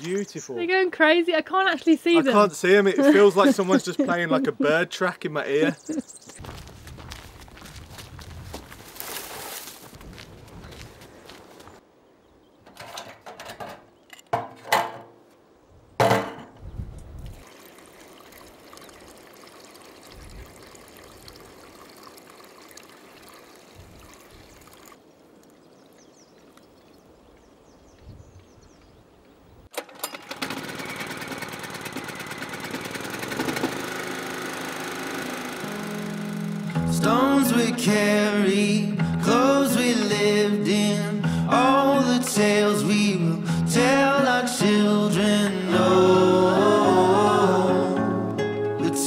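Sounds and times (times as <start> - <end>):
fuel pouring through a funnel: 17.3 - 25.0
generator engine running: 30.2 - 37.4.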